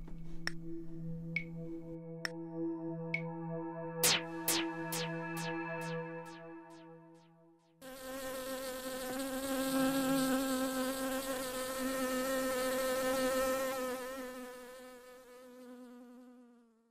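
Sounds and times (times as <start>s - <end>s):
bee buzzing: 7.8s - 16.8s.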